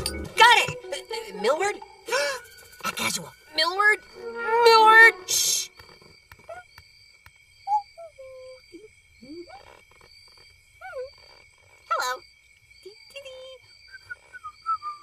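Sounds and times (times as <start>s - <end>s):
steady high chirping: 0.0s - 5.8s.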